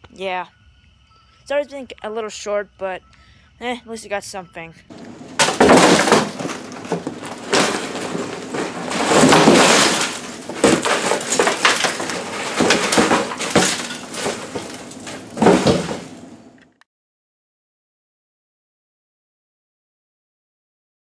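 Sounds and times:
cardboard scraping and rustling: 4.9 - 16.4
hard pieces clattering in box: 4.9 - 16.4.

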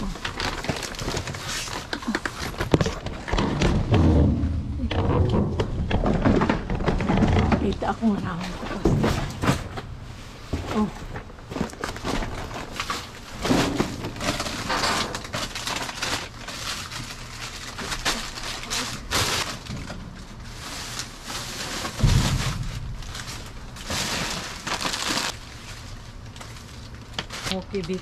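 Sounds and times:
plastic bags rustling: 0.0 - 3.9, 5.7 - 28.0
heavy thump: 3.3 - 7.7, 21.9 - 24.5.

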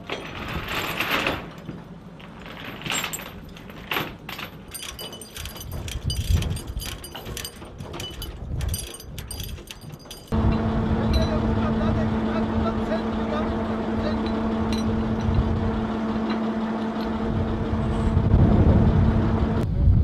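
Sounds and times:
steel chains clanking: 0.0 - 18.1
low rumble: 8.1 - 20.0.

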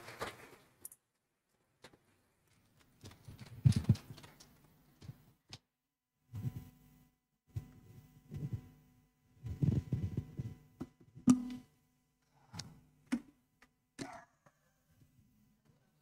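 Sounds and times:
muffled footsteps: 1.8 - 5.6
faint steady hum: 6.3 - 16.0.

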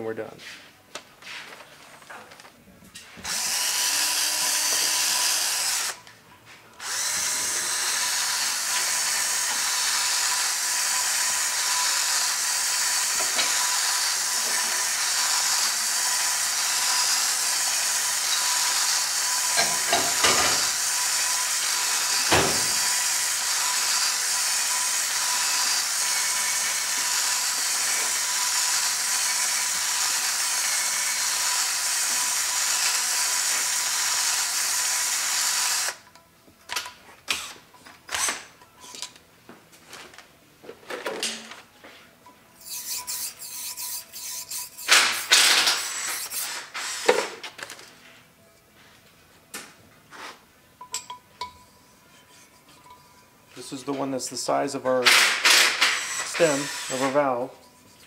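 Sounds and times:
handheld drill honing: 3.2 - 6.1, 6.8 - 36.2, 42.6 - 47.3, 55.1 - 57.3.

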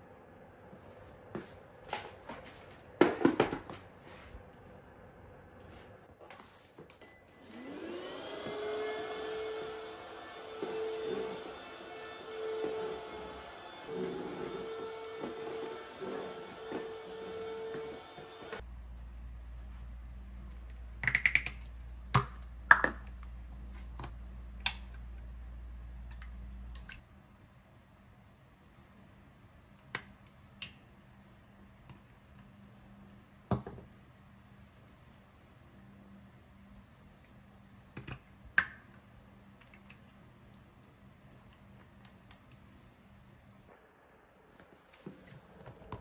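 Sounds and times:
low steady hum: 18.3 - 46.0.

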